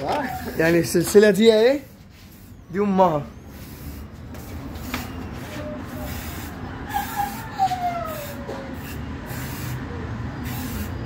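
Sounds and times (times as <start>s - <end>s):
spray can hissing: 3.5s - 7.5s, 8.1s - 11.0s.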